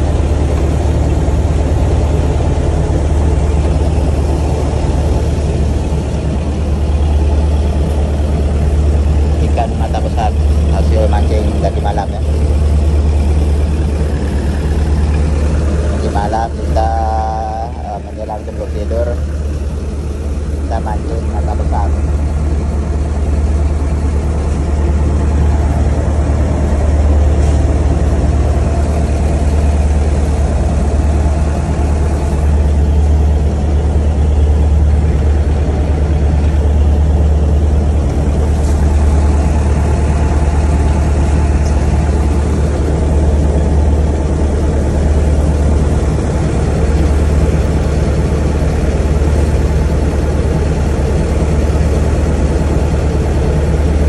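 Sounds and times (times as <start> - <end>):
boat engine humming: 0.0 - 54.0.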